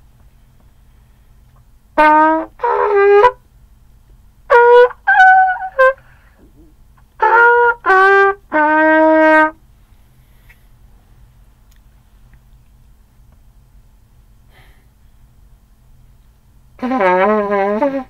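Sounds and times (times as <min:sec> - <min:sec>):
muted trumpet playing notes: 0:02.0 - 0:03.4, 0:04.5 - 0:06.2, 0:07.2 - 0:09.6, 0:16.8 - 0:18.0.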